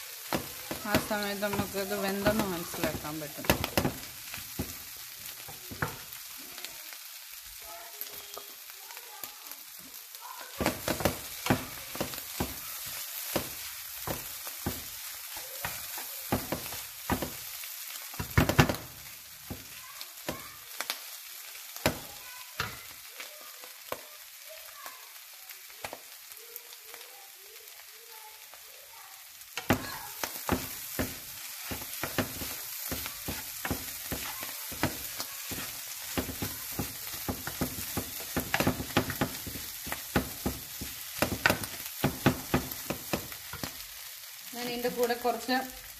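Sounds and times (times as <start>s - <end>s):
food sizzling in oil: 0.0s - 45.9s
wooden spatula scraping a pan: 29.6s - 43.7s.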